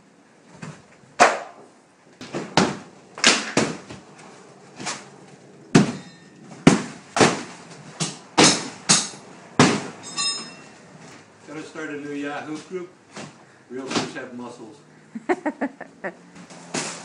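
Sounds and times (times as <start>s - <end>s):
sledgehammer smashing drywall: 5.7s - 10.0s.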